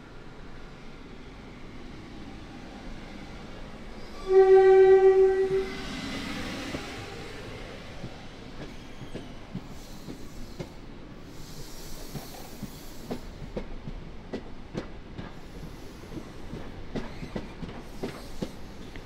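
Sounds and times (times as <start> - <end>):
train rumbling: 0.0 - 19.0
train horn blast: 4.1 - 6.0.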